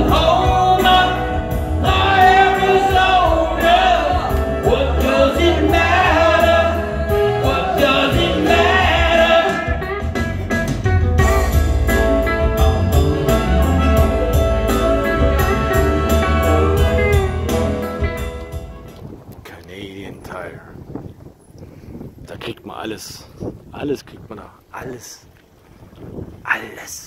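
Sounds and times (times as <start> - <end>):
person singing through a pa: 0.0 - 10.0
steady drum beat: 0.0 - 18.8
heavy bass line: 0.0 - 19.0.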